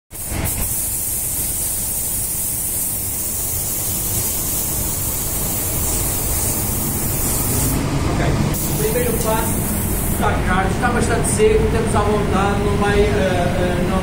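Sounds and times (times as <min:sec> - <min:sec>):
spray gun hissing: 0:00.1 - 0:07.9, 0:08.5 - 0:10.3.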